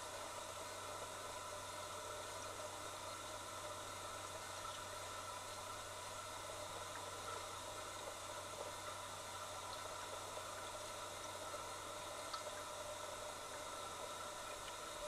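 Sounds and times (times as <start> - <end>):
underwater hiss and hum: 0.0 - 15.0
faint ticks: 9.6 - 12.7, 13.5 - 15.0.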